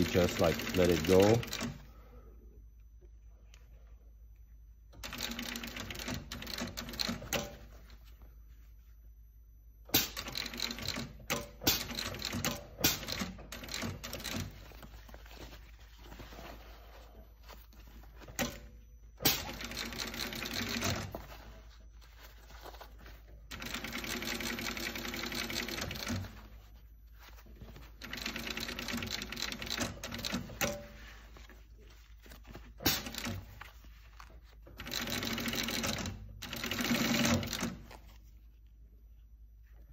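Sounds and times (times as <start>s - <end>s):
industrial sewing machine stitching: 0.0s - 1.8s, 5.0s - 7.6s, 10.0s - 14.6s, 19.2s - 21.1s, 23.5s - 26.4s, 28.0s - 30.9s, 32.8s - 33.5s, 34.8s - 37.8s.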